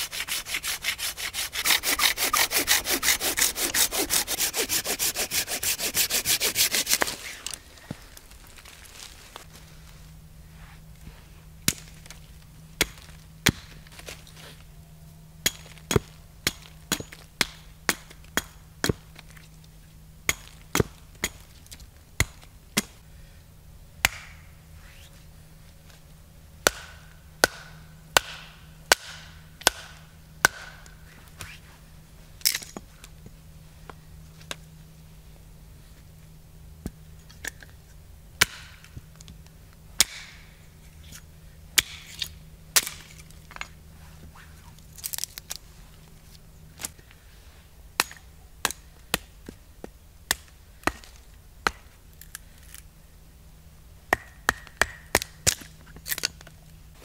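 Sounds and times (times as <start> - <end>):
hatchet chopping wood: 15.4 - 19.1, 20.3 - 21.4, 24.0 - 24.4, 26.6 - 30.9, 38.4 - 38.9, 40.0 - 40.4, 41.8 - 43.1, 50.3 - 51.9, 54.1 - 56.3.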